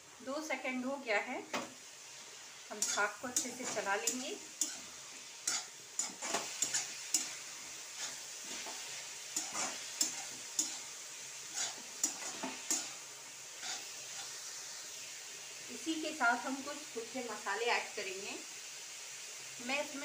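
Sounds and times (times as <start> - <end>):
food sizzling: 0.0 - 20.0
metal spatula scraping pan: 2.8 - 13.0, 13.6 - 14.4.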